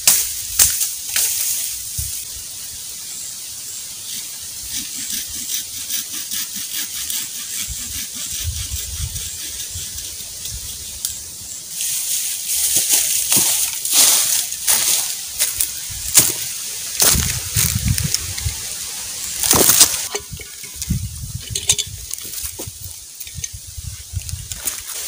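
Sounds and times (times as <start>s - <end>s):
dry leaves crackling and rustling: 0.0s - 2.5s, 9.6s - 25.0s
footsteps crunching through dry leaves: 10.5s - 21.4s, 22.0s - 25.0s.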